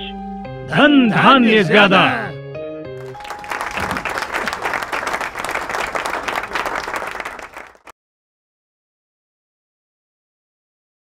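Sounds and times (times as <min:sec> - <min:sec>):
crowd applause: 0:03.0 - 0:07.9.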